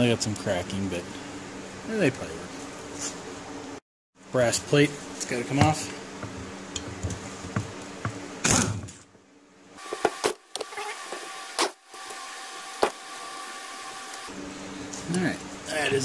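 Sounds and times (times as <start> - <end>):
air tool running in bursts: 10.9 - 14.3.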